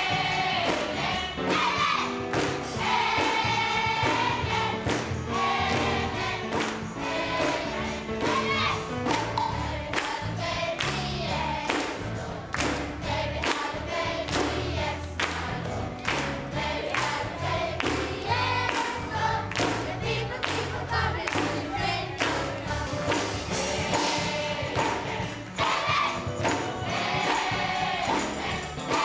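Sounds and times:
gospel choir singing: 0:00.0 - 0:29.0
hand clapping: 0:00.6 - 0:01.6, 0:02.3 - 0:03.4, 0:04.0 - 0:05.2, 0:05.8 - 0:07.6, 0:08.2 - 0:11.1, 0:11.7 - 0:14.6, 0:15.2 - 0:17.2, 0:17.8 - 0:23.4.

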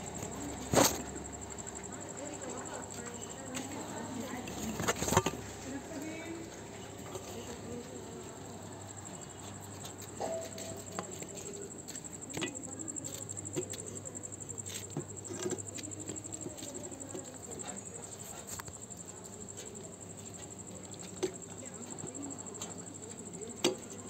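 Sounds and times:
crickets chirping: 0:00.0 - 0:24.0.

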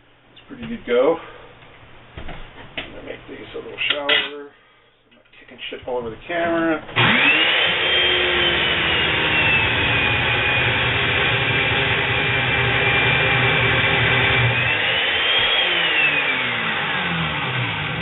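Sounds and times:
chain mortiser whining: 0:06.9 - 0:10.6.

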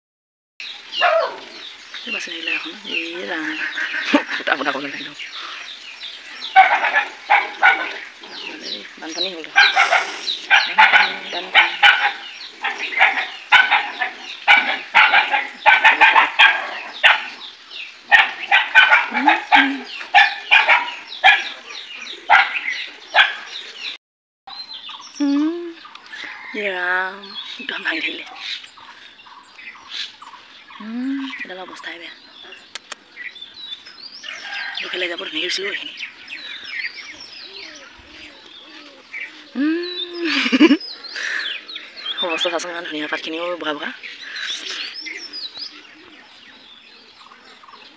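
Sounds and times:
small birds chirping: 0:00.6 - 0:47.9
dog barking: 0:01.0 - 0:01.4, 0:06.5 - 0:08.0, 0:09.5 - 0:17.4, 0:18.1 - 0:23.5.

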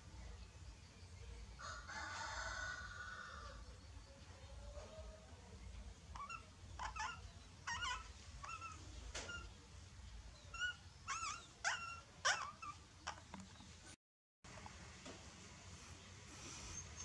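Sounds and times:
puppies whimpering: 0:06.2 - 0:09.5, 0:10.5 - 0:13.3.

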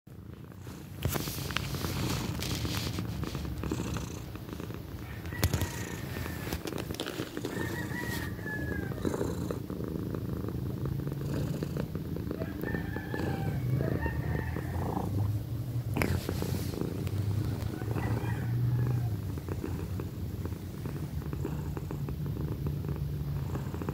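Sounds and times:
cat purring: 0:00.1 - 0:23.9
clicks and rustles: 0:00.9 - 0:03.6, 0:05.2 - 0:08.4.

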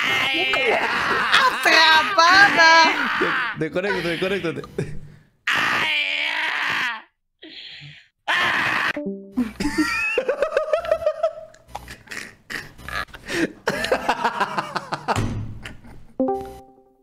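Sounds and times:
people laughing hard: 0:00.0 - 0:04.1, 0:09.4 - 0:12.1, 0:13.2 - 0:16.1
background music: 0:09.0 - 0:10.0, 0:16.2 - 0:17.0.

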